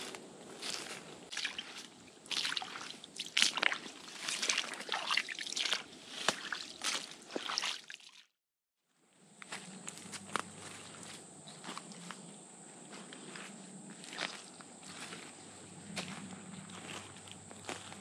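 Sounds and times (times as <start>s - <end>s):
footsteps squelching through water: 0.0s - 8.3s, 14.0s - 15.3s.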